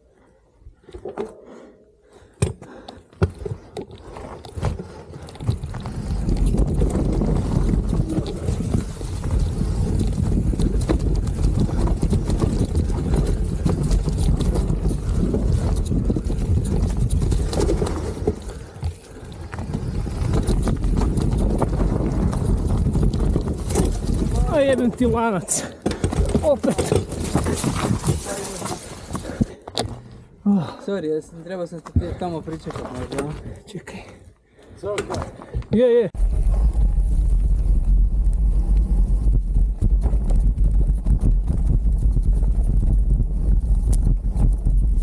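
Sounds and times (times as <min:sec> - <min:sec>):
bike rattling over ground: 0:03.4 - 0:29.7, 0:36.2 - 0:45.0
wind rumble on microphone: 0:05.4 - 0:24.7, 0:36.2 - 0:45.0.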